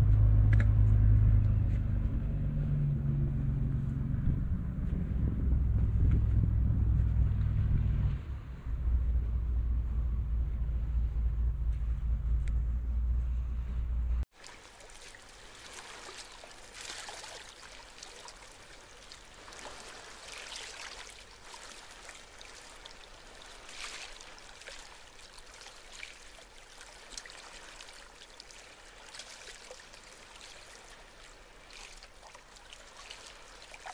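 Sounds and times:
faint water rushing and trickling: 14.3s - 33.9s.

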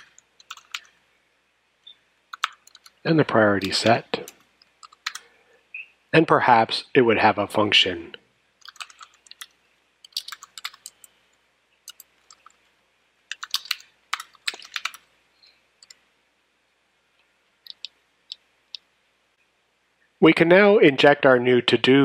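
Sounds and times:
computer keyboard typing: 0.0s - 1.0s, 2.3s - 5.3s, 8.6s - 11.1s, 11.9s - 12.6s, 13.3s - 15.1s, 17.6s - 18.0s.

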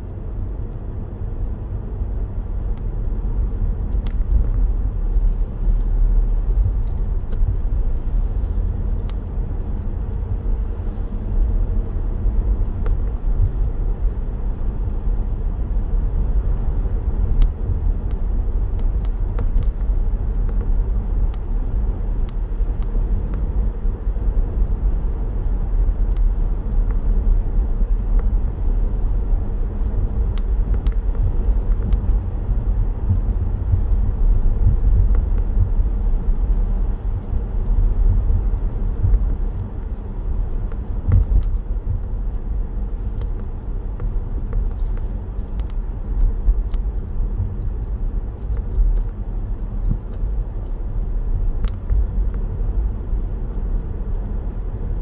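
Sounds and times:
car driving on wet road: 0.0s - 55.0s.

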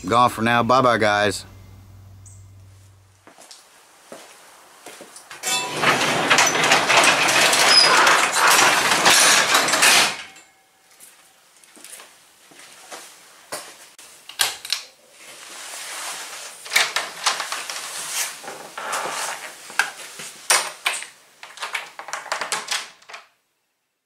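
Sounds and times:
clicks knocks and rustling: 5.4s - 10.5s, 19.3s - 23.4s.

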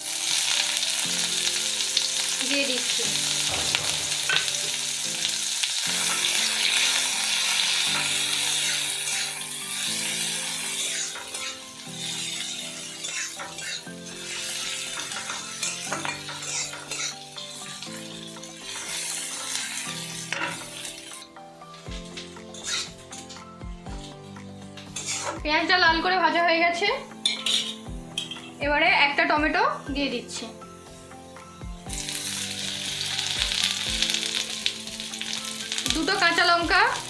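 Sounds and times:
onions sizzling in hot oil: 0.0s - 26.2s, 27.0s - 29.2s, 30.3s - 37.0s
spatula scraping a pan: 6.0s - 25.4s, 27.2s - 28.6s.

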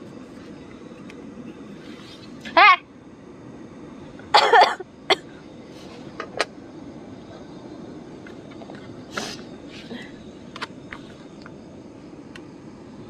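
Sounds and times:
woman coughing: 4.3s - 5.3s.

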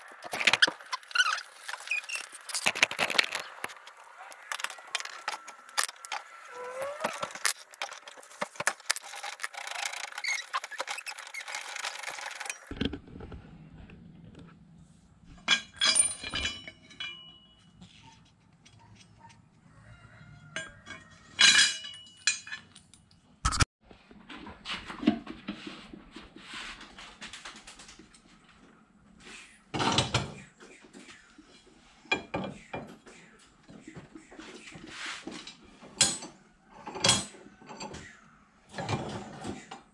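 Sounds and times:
metal clatter: 0.0s - 6.3s, 15.4s - 17.7s
metal clinking: 0.2s - 6.3s, 15.4s - 17.8s, 20.6s - 23.2s
metal blades clinking and scraping: 15.4s - 17.9s, 20.6s - 23.0s.

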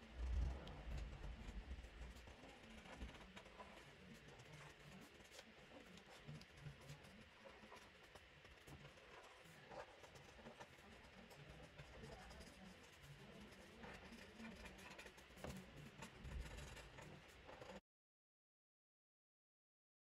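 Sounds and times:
marker scratching on paper: 2.0s - 17.8s.

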